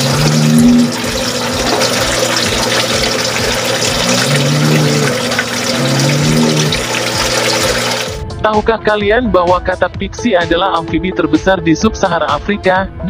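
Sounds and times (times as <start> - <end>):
frog giving deep low calls: 0.0 - 1.0, 3.9 - 6.9
tap water pouring into tub: 0.0 - 8.2.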